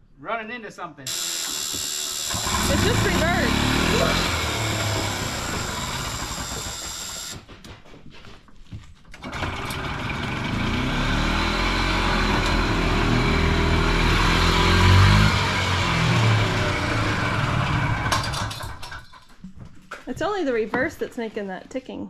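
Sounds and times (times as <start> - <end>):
reverse backup alarm buzzing: 1.1 - 7.4
golf cart engine running: 2.2 - 7.4, 9.2 - 18.7.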